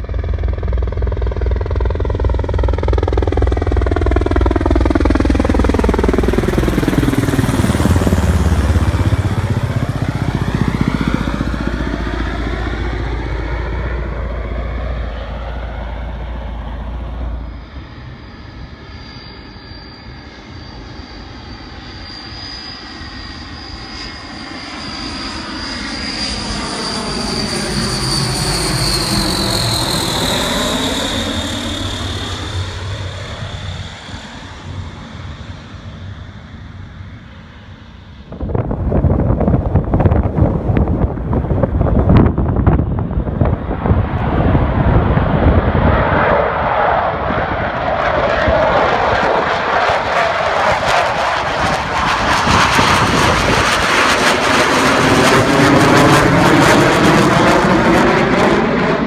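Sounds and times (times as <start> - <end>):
deep steady drone: 0.0 - 24.4
jet engine whine falling in pitch: 0.0 - 59.0
military aircraft passing low: 0.0 - 59.0.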